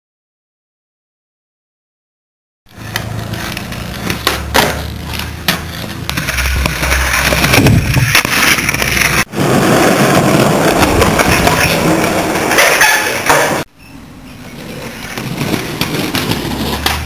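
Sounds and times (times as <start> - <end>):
skateboard clacking on ground: 2.7 - 13.7, 14.4 - 17.0
skateboard wheels rolling on concrete: 2.7 - 17.0.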